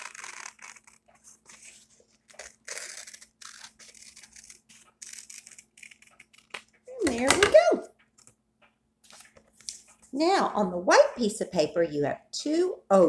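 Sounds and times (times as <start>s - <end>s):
scissors snipping paper: 0.0s - 6.7s
paper rustling: 0.0s - 6.8s, 9.0s - 10.1s.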